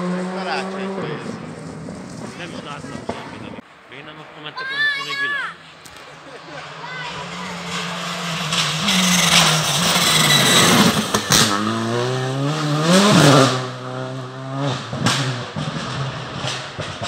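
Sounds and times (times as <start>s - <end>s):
rally car accelerating past: 6.6s - 17.0s.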